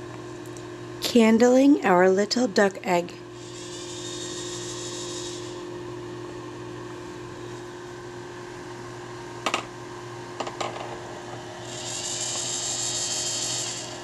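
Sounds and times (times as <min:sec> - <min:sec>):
incubator fan humming: 0:00.0 - 0:14.0.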